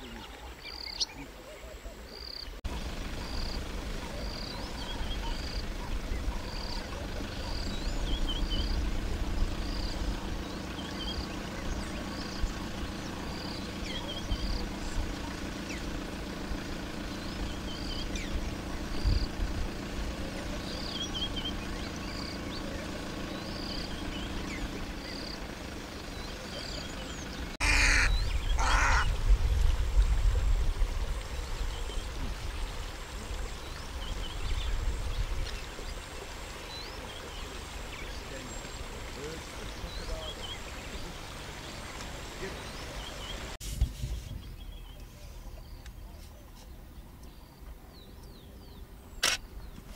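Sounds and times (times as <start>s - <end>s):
loud bird calls: 0.0s - 29.2s.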